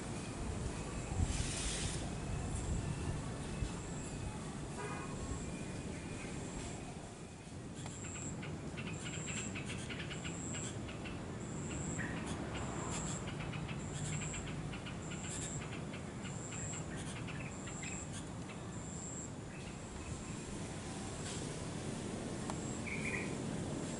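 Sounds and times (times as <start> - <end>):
low steady background hum: 0.0 - 23.9
insect chirping: 7.8 - 20.6, 22.5 - 23.5.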